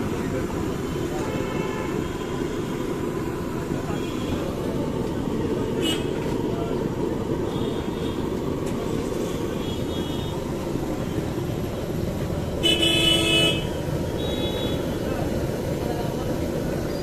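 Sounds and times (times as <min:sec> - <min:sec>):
street traffic rumble: 0:00.0 - 0:17.0
vehicle horn honking: 0:01.2 - 0:02.4, 0:05.8 - 0:06.2, 0:12.6 - 0:14.8.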